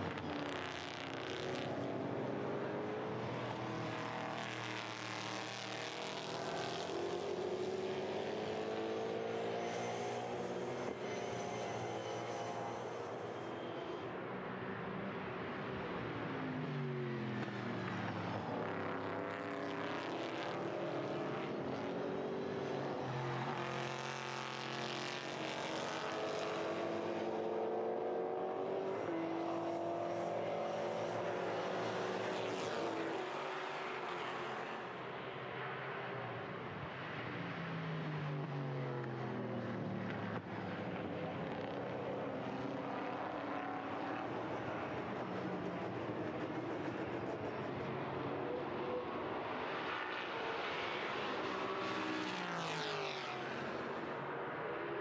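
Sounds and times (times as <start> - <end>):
race car engines passing: 0.0 - 55.0.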